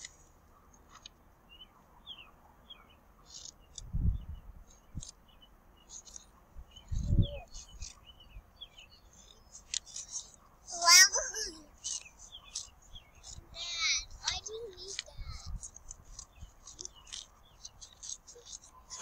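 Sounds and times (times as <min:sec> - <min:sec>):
small birds chirping: 0:00.0 - 0:19.0
scissors snipping paper: 0:11.1 - 0:13.4, 0:14.7 - 0:19.0.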